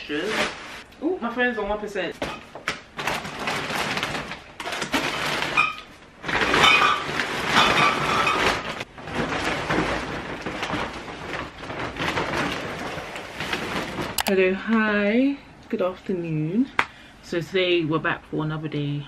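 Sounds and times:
plastic bags and packets crinkling: 0.0s - 14.6s.

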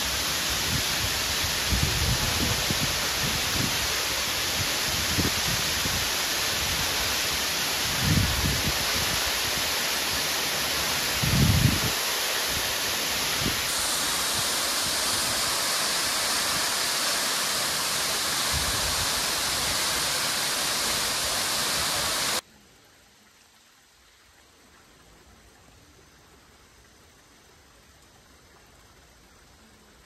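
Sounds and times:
waterfall rushing: 0.0s - 22.4s.

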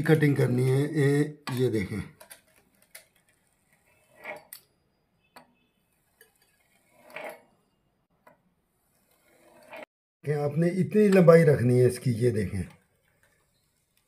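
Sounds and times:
wheel cutter scraping on stone: 3.5s - 4.7s, 5.9s - 7.8s, 8.8s - 9.9s.

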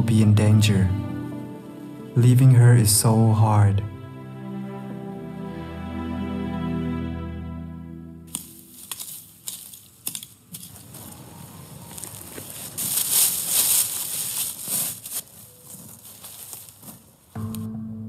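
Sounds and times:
rustling and crunching: 8.3s - 17.4s.

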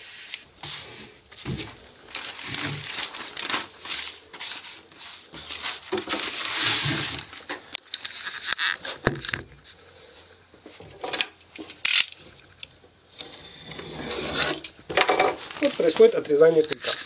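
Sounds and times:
plastic film crinkling: 0.0s - 9.3s, 15.1s - 17.0s.

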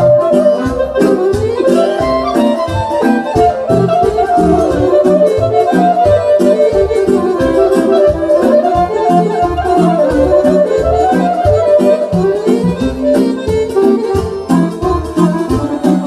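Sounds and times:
clarinet melody: 0.0s - 16.0s
electronic keyboard beat: 0.0s - 16.0s.

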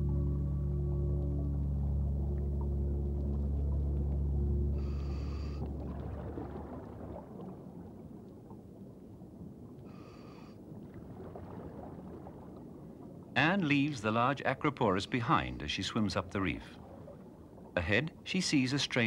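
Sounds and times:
low crackling hiss: 0.0s - 19.0s
regulator breathing inhalations: 4.8s - 5.6s.

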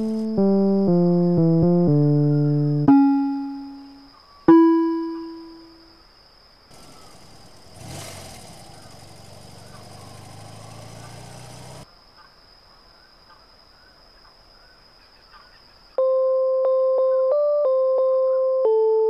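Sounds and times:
simple electronic melody: 0.0s - 5.8s, 16.0s - 19.0s
faint bird chirps: 2.2s - 5.9s, 6.7s - 7.6s, 8.4s - 17.4s
cartoon car engines: 6.7s - 11.8s.

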